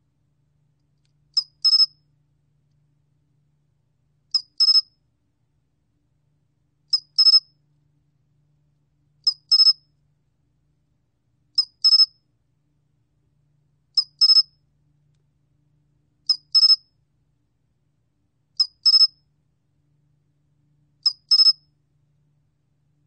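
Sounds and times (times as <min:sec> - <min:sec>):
cricket chirping: 0:09.3 - 0:09.8, 0:11.6 - 0:12.1, 0:14.0 - 0:14.5, 0:18.6 - 0:19.2, 0:21.0 - 0:21.6.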